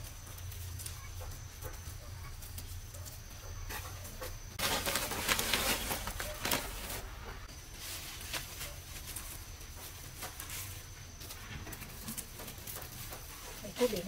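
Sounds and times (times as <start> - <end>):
leafy stems rustling and crackling: 0.0 - 14.0.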